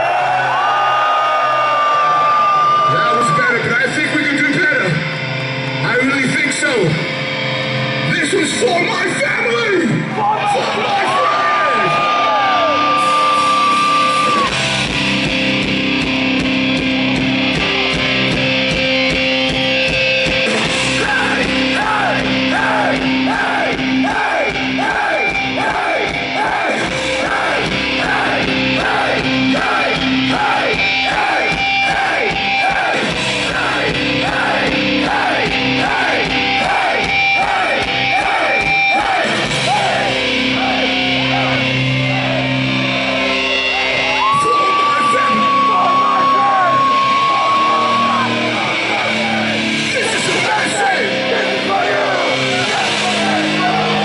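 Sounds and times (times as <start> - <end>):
punk band playing live: 0.0 - 54.0
person singing: 20.5 - 42.2.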